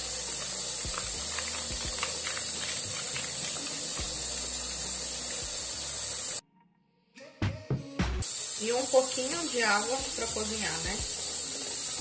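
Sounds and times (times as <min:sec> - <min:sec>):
meat sizzling in a pot: 0:00.0 - 0:06.4, 0:08.2 - 0:12.0
plastic sachet crinkling: 0:00.9 - 0:03.8.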